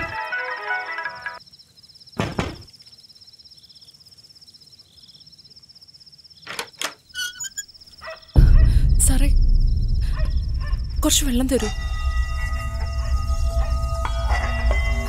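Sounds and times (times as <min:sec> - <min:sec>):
crickets chirping: 0:00.5 - 0:15.0
door creak: 0:06.4 - 0:07.8.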